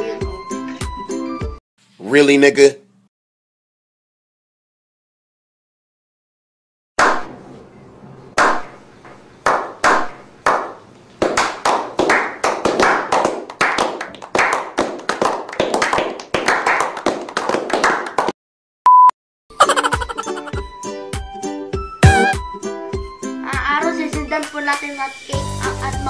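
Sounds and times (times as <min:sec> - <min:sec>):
people clapping: 0:09.4 - 0:18.4
test-tone beep: 0:18.9 - 0:19.1, 0:22.0 - 0:22.5.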